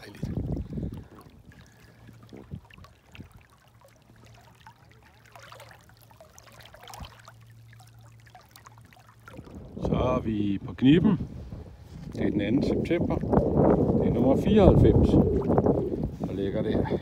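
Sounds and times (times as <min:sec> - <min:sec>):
small splashes: 0:00.0 - 0:09.8
sea water lapping and trickling: 0:00.0 - 0:17.0.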